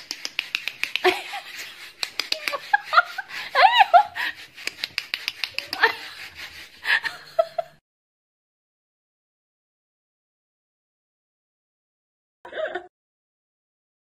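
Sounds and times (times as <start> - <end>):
quick clicks and taps: 0.0 - 2.8, 4.6 - 5.9.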